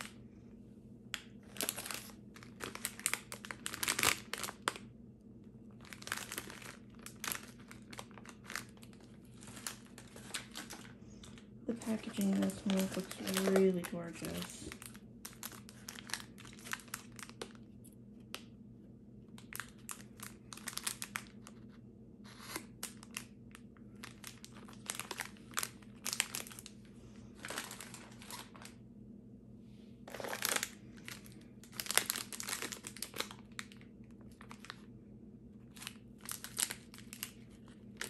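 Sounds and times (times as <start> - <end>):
plastic wrappers crinkling: 1.1 - 4.9, 5.7 - 18.5, 19.3 - 28.8, 30.1 - 34.9, 35.6 - 38.0.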